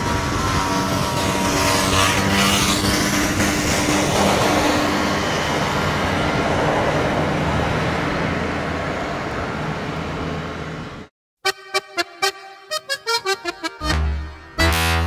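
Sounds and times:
road traffic rushing: 0.0s - 15.0s
music: 11.4s - 15.0s.

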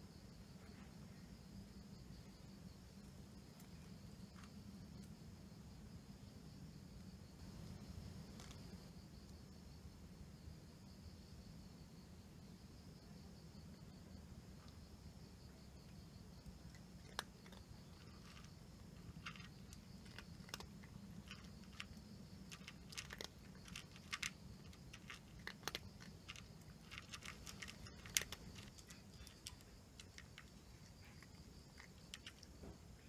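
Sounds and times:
cat crunching dry kibble: 7.4s - 8.8s, 16.3s - 32.8s.

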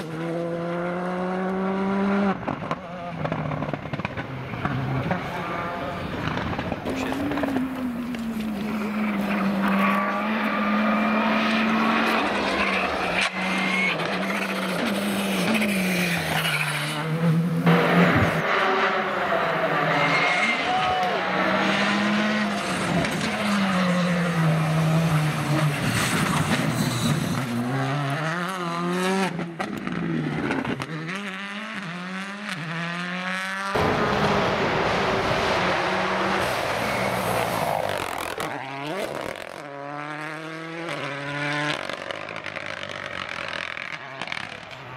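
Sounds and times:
rally car engine revving high: 0.0s - 44.8s.

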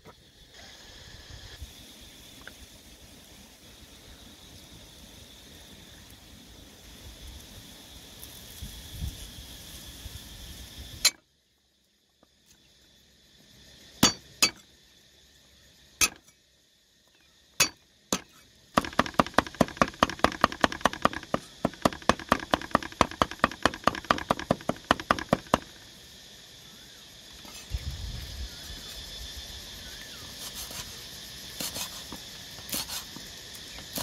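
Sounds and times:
cleaver chopping on wooden block: 14.0s - 14.6s, 17.6s - 25.7s.

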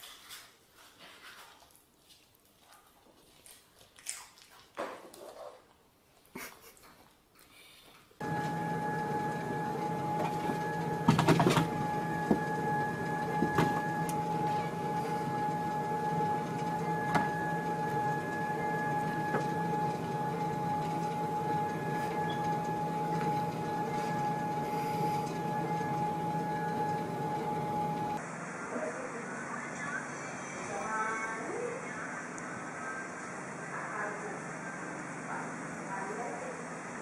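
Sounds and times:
treadmill motor hum and whine: 8.2s - 37.0s.

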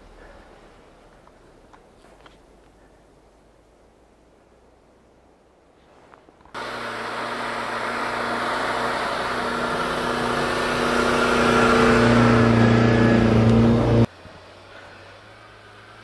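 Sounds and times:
car engine under load: 6.4s - 16.0s.

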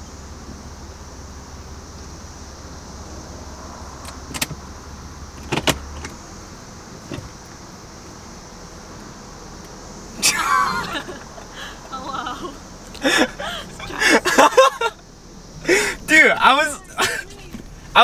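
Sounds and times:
car engine hum: 0.0s - 18.0s
sharp clicks of car controls: 4.0s - 4.6s, 5.4s - 6.2s.

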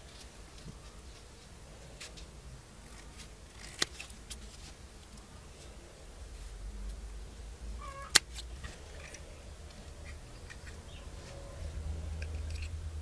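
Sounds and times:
scissors snipping: 2.9s - 4.4s.

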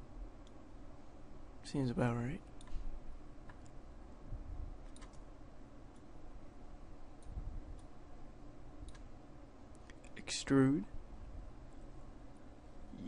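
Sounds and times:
faint background hiss: 0.0s - 13.0s
computer mouse clicks: 2.6s - 2.8s, 3.4s - 3.8s, 4.8s - 5.3s, 8.8s - 9.1s.

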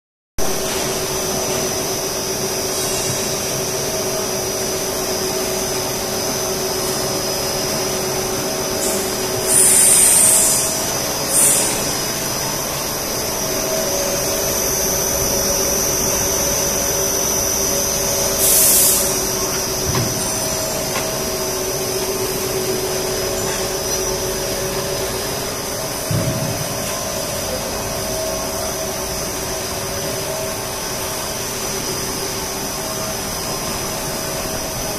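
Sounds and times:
machine drone with high whine: 0.4s - 34.9s.

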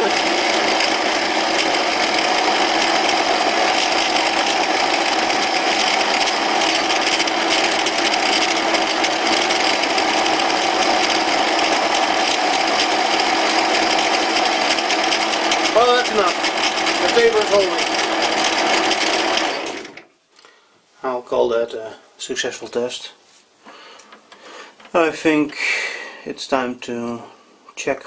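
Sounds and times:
lathe drilling into steel: 0.0s - 20.0s.

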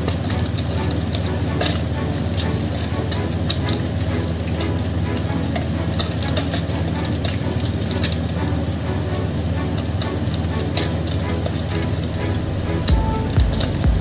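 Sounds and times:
fish frying in hot oil: 0.0s - 12.4s
low hum: 12.2s - 14.0s.

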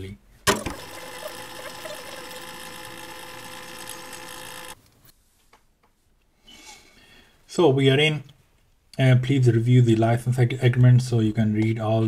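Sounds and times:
laptop cooling fan whirring: 0.5s - 4.8s.

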